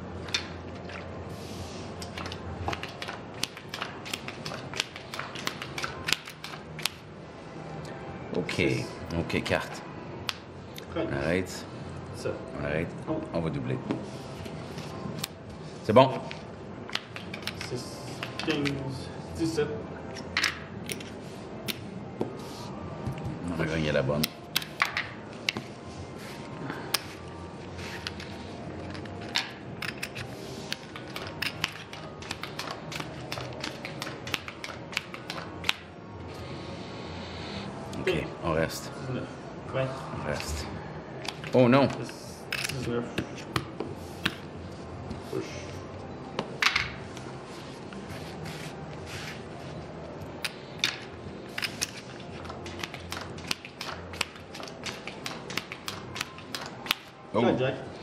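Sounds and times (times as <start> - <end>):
low steady hum: 0.0 - 58.0
casino chips clicking: 2.0 - 7.0, 17.0 - 18.8, 28.9 - 35.8, 51.6 - 57.1
cards gathered and dealt: 16.1 - 18.8, 24.2 - 35.9, 46.5 - 57.2
playing cards sliding on felt: 22.2 - 22.8, 47.2 - 49.7.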